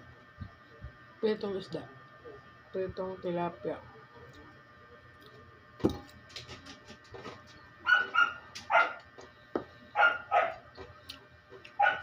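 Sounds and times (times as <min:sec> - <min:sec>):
dog barking: 0:07.8 - 0:09.0, 0:10.0 - 0:10.6, 0:11.8 - 0:12.0.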